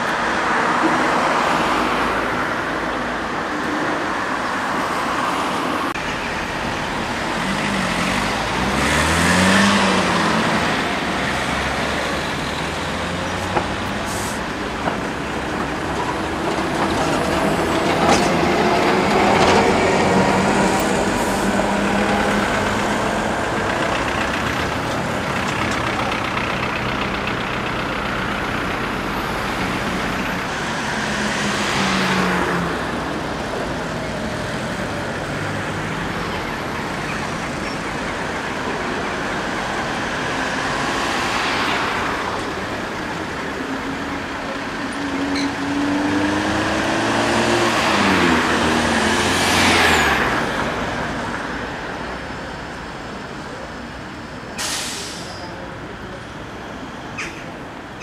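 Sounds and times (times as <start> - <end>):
cars and buses passing: 0.0 - 58.0
engines revving up: 7.1 - 14.5.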